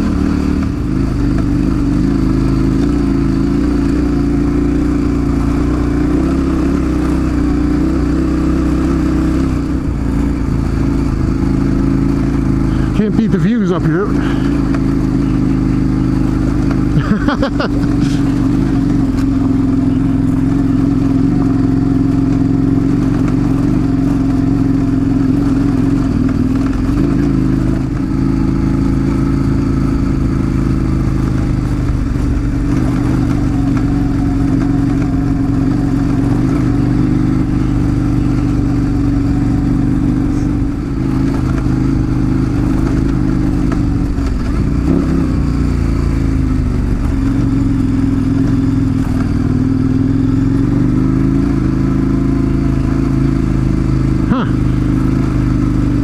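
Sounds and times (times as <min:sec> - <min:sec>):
motorcycle engine cruising: 0:00.0 - 0:56.0.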